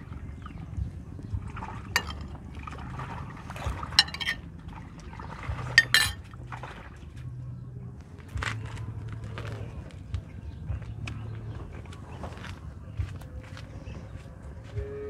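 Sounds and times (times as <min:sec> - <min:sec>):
low steady hum: 0:00.0 - 0:15.0
spoon clinking on china: 0:02.0 - 0:02.3, 0:04.0 - 0:04.4, 0:05.8 - 0:06.2.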